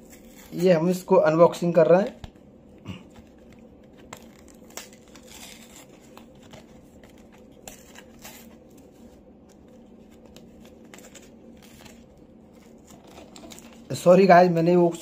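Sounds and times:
cardboard packaging tearing: 0.0s - 0.9s, 3.8s - 8.8s, 10.4s - 13.9s
crinkling of card and plastic: 2.0s - 15.0s.

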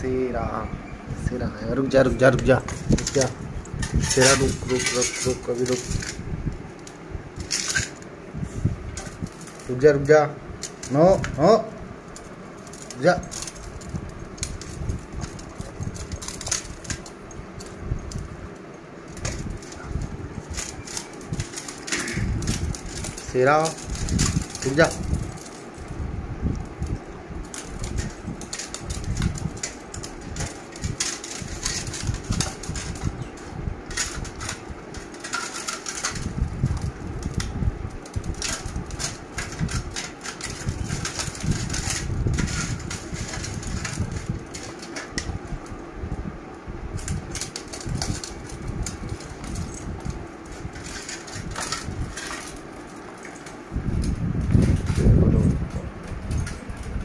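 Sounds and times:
steady hum: 0.0s - 57.0s
metal bowl scraping on stone floor: 2.2s - 6.2s.

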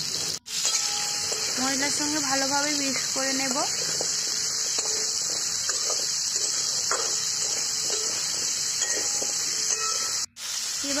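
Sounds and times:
potatoes sizzling in oil: 0.0s - 11.0s
metal spatula scraping pan: 0.1s - 1.8s, 3.5s - 10.3s.

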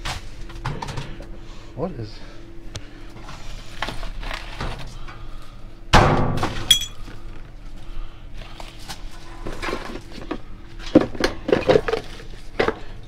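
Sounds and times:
bright ringing clink: 6.7s - 7.0s.

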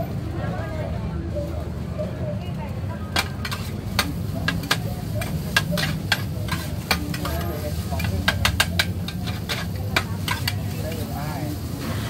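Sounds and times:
steady sizzle: 2.8s - 12.0s
metal spatulas clacking on pan: 3.2s - 11.1s.

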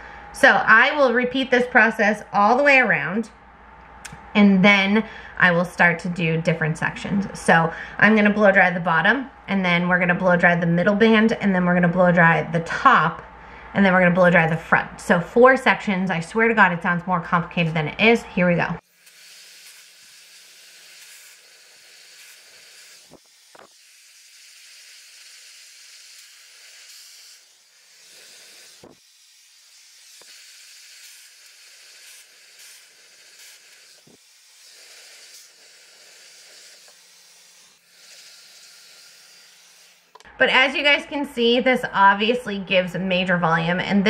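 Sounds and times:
hair dryer blowing: 18.8s - 40.3s.

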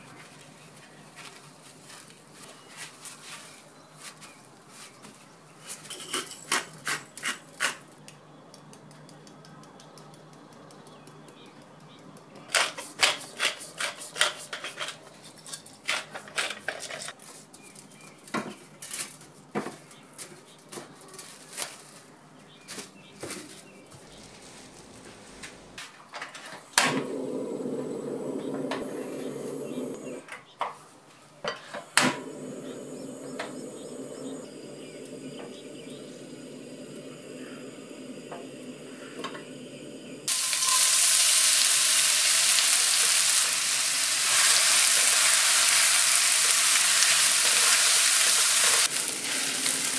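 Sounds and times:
cooktop humming: 23.2s - 30.3s, 31.4s - 49.9s.

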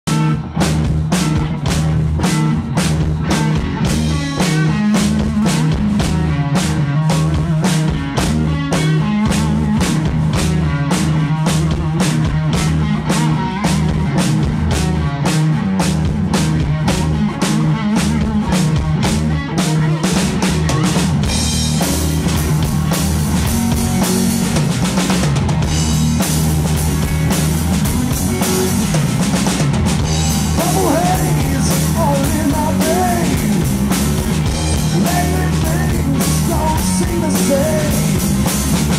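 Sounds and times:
bass guitar: 0.0s - 38.9s
electric guitar: 0.0s - 38.9s
drum kit beat: 0.1s - 38.9s.

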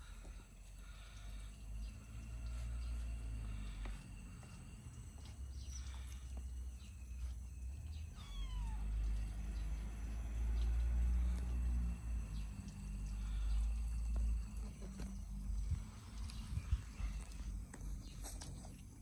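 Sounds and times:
low rumble: 0.0s - 18.2s
kitten meowing: 8.1s - 8.9s.

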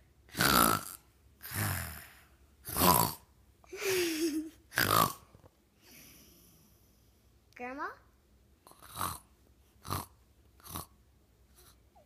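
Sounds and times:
boy fake-snoring: 0.3s - 3.3s, 4.7s - 5.3s, 8.7s - 10.9s.

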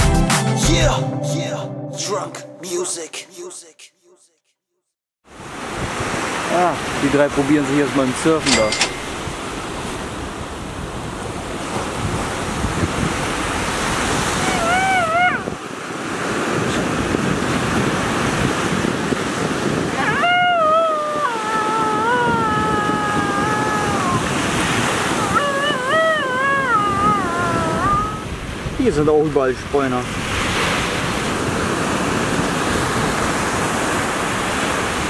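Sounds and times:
ocean surf breaking: 5.3s - 35.0s
wind buffeting microphone: 8.2s - 35.0s
high wavering melodic line: 8.4s - 9.7s.

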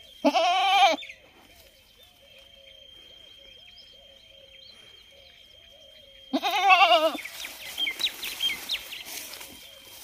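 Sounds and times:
goat bleating: 0.2s - 1.0s, 6.3s - 7.2s.

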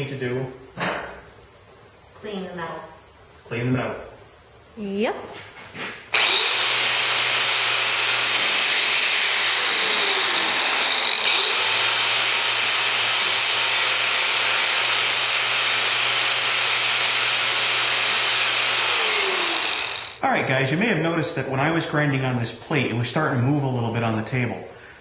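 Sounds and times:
angle grinder on steel: 6.1s - 20.2s.

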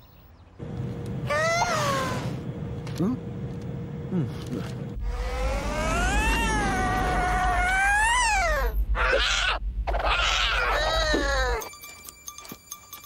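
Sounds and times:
harsh cat screech: 5.4s - 11.6s
cartoon cat yowling: 5.6s - 11.6s.

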